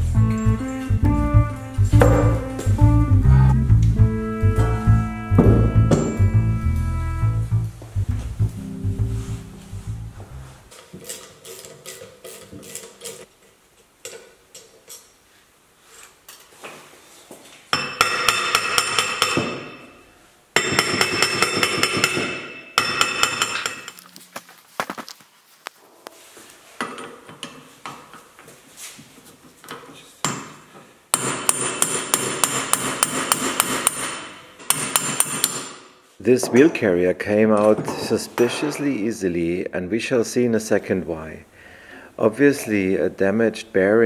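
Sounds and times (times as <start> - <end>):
rapid hammer blows on metal: 31.2 - 35.8.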